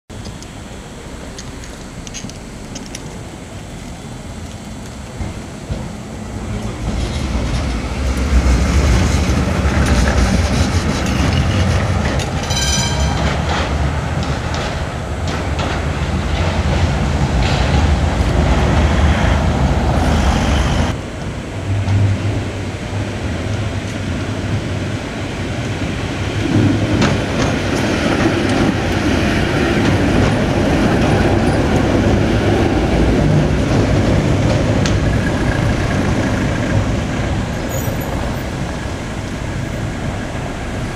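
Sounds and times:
trams rumbling on rails: 0.1 - 40.9.

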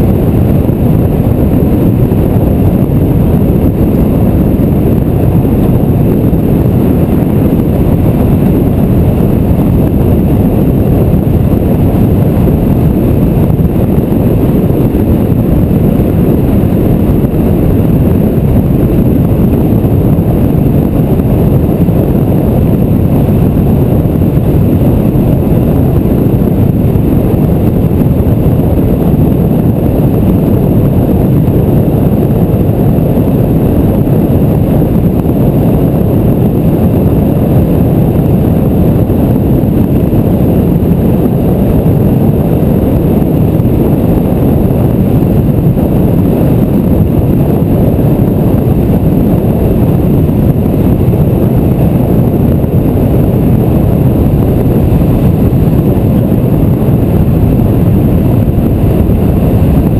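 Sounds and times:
wind and road noise: 0.0 - 59.9.

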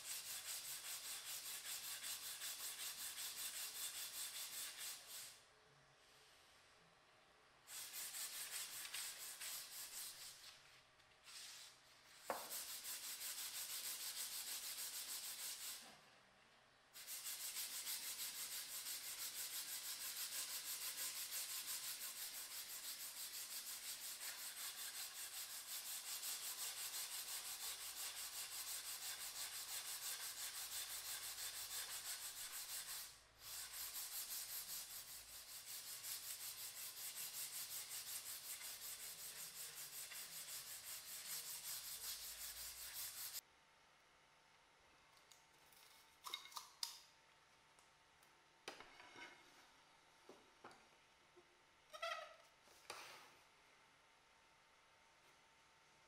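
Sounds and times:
sandpaper rubbing wooden dowel: 0.0 - 5.4, 7.7 - 10.6, 11.3 - 15.8, 17.0 - 43.4.

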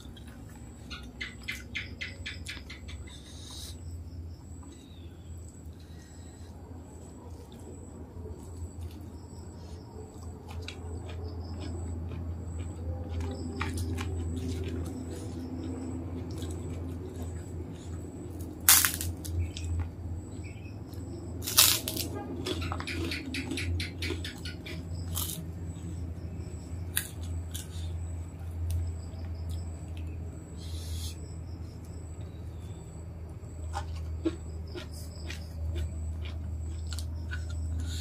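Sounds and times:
soft chewing: 0.0 - 1.5, 2.7 - 38.0
steady low hum: 0.0 - 38.0
cracker snapping and crunching: 10.2 - 19.9, 20.9 - 25.5, 26.9 - 27.9.

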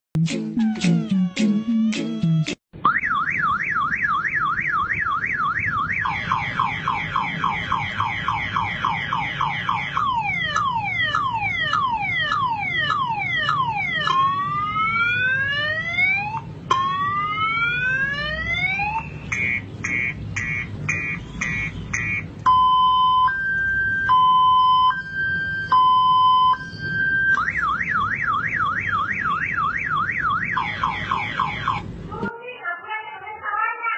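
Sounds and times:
vehicle alarm siren: 0.6 - 32.0.

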